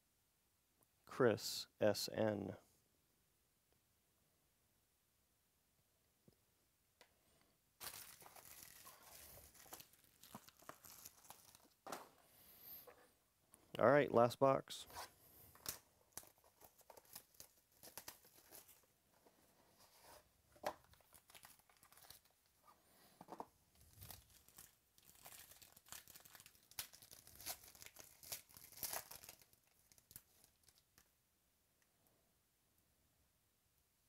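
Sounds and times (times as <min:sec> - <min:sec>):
foil wrapping tearing and crinkling: 0:07.8 - 0:11.7, 0:21.0 - 0:22.3, 0:23.9 - 0:30.7.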